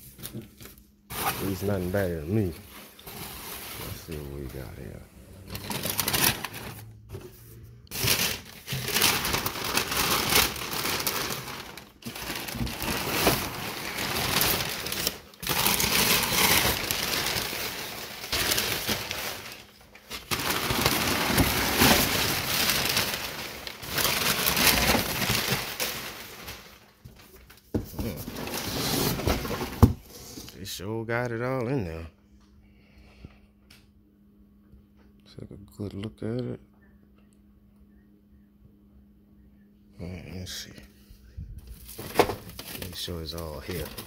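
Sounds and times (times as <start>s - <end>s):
packing paper rustling: 0.0s - 30.5s, 41.6s - 44.0s.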